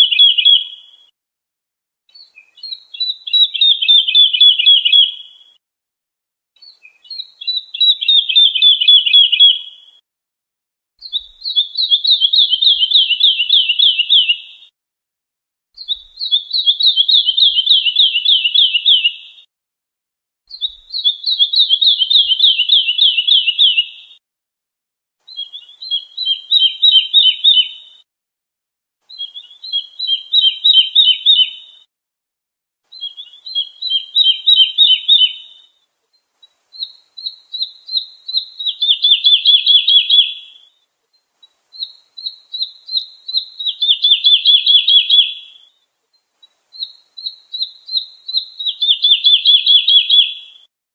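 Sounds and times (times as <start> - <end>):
lark singing trills: 0.0 - 0.8, 2.1 - 5.3, 6.6 - 9.7, 11.0 - 14.6, 15.8 - 19.4, 20.5 - 24.2, 25.2 - 28.0, 29.1 - 31.9, 32.9 - 35.7, 36.4 - 40.7, 41.4 - 45.7, 46.4 - 50.7.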